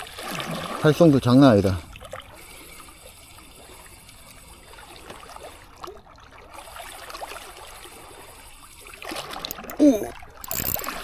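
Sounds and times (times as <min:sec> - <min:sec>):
small waves lapping on rocks: 0:00.0 - 0:11.0
fishing reel clicking and whirring: 0:07.7 - 0:11.0.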